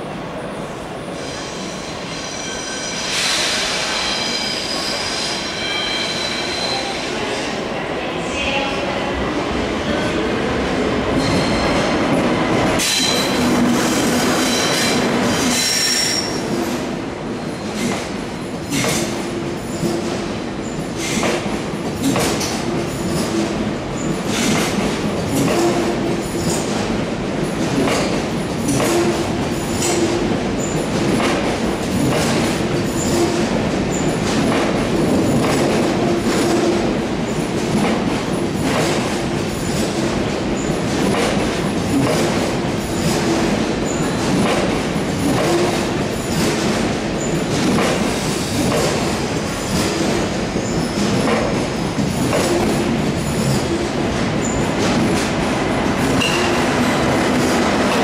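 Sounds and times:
train rolling rumble: 0.0s - 58.0s
train wheel squeal: 1.2s - 7.5s, 11.2s - 11.9s, 12.8s - 16.6s, 56.2s - 56.6s.

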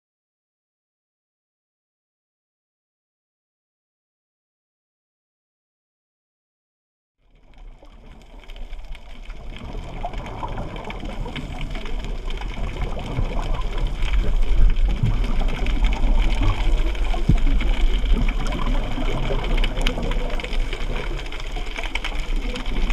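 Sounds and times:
underwater clicks and crackles: 7.2s - 22.9s
underwater low rumble: 7.2s - 22.9s.

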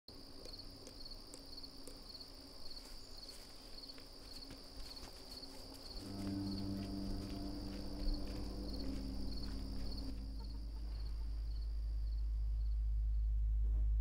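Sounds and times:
insects chirping: 0.1s - 13.4s
low sustained tone: 6.0s - 14.0s.

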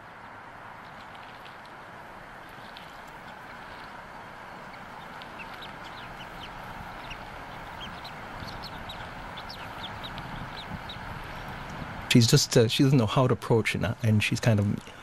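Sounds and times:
eaglet peeping: 2.4s - 11.8s.

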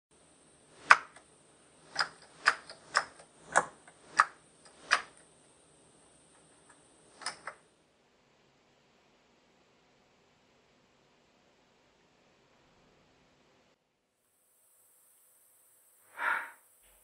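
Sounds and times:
computer keyboard keystrokes: 1.9s - 5.2s, 7.2s - 7.6s.

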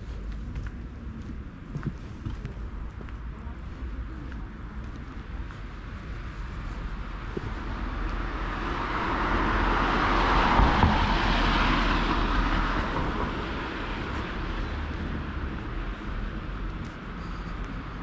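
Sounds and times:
vehicle passing by: 7.6s - 16.0s.

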